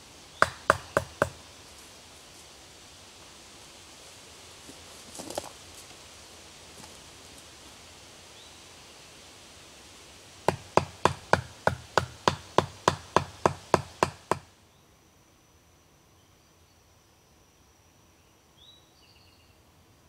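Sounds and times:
stake being hammered: 0.4s - 1.4s, 10.5s - 14.5s.

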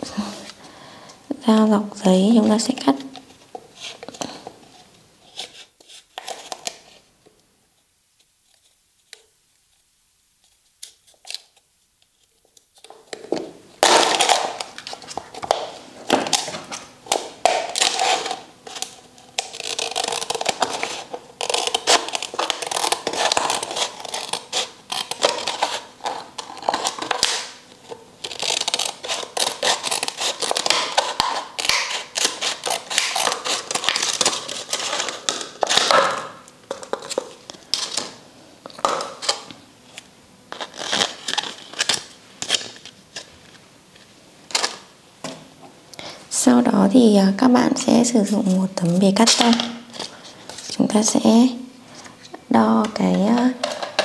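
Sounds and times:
knife cutting plastic cup: 13.1s - 37.3s.

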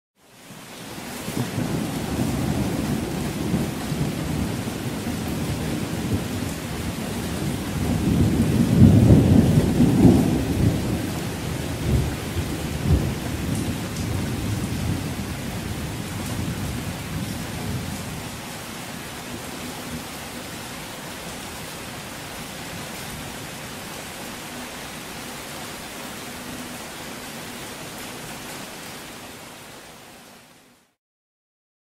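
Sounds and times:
steady rain: 0.2s - 31.0s
distant thunder rumbling: 1.4s - 18.4s.

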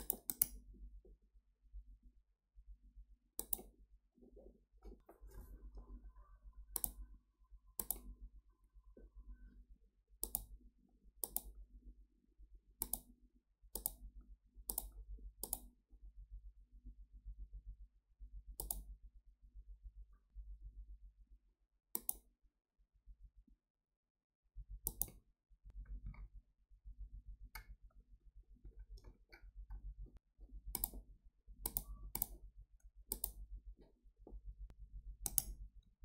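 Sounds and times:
computer mouse clicking: 0.0s - 0.6s, 3.4s - 3.7s, 6.7s - 7.0s, 7.8s - 8.1s, 10.2s - 10.5s, 11.2s - 11.6s, 12.8s - 13.1s, 13.7s - 14.0s, 14.7s - 15.7s, 18.6s - 18.9s, 21.9s - 22.3s, 24.8s - 25.2s, 30.7s - 31.0s, 31.6s - 32.4s, 33.1s - 33.4s, 35.2s - 35.6s
faint low hum: 0.0s - 22.2s, 24.6s - 36.0s.

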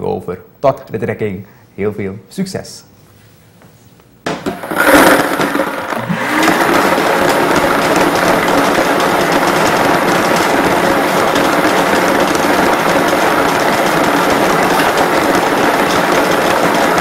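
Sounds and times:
balls rattling inside machine: 4.3s - 17.0s
motor whining: 4.6s - 16.7s.

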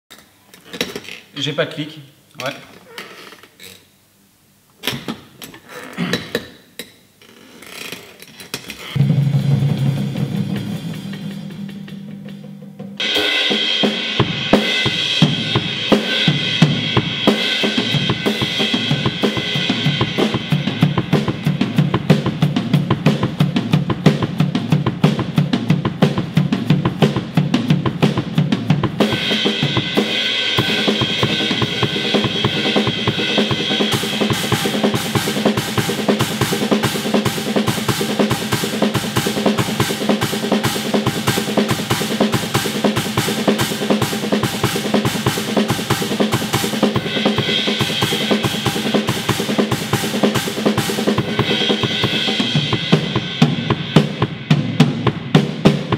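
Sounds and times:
drum kit groove: 8.9s - 55.9s
low drum note ringing: 9.0s - 13.2s.

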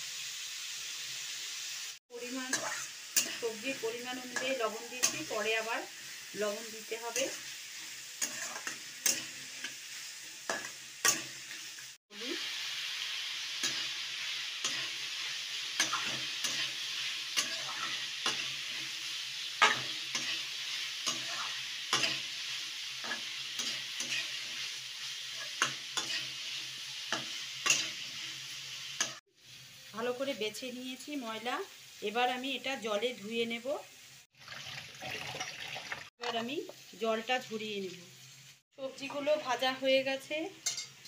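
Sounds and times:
vegetables sizzling in oil: 0.0s - 41.0s
spatula scraping a metal pan: 2.5s - 3.6s, 7.2s - 11.7s, 13.6s - 18.9s, 19.6s - 28.3s.

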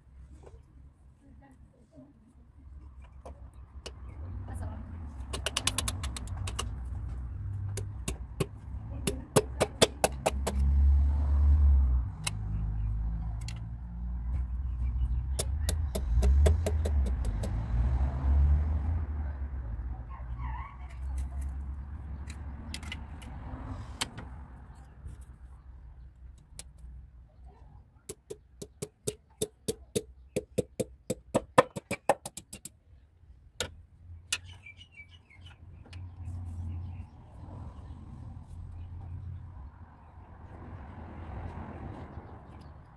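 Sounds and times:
metallic clicks and taps of tools: 5.3s - 6.8s, 13.4s - 13.7s, 22.2s - 23.3s.

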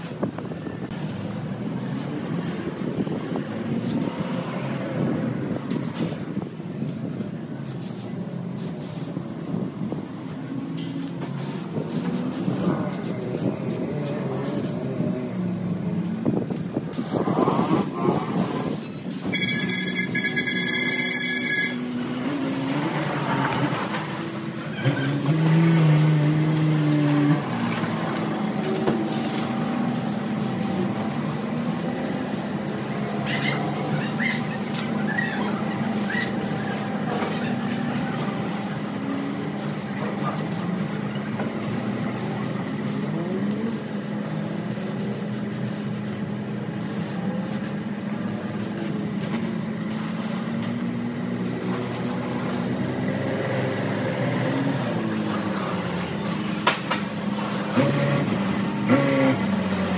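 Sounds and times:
paint spray gun hissing: 11.4s - 13.5s, 28.4s - 34.8s, 35.8s - 50.8s.

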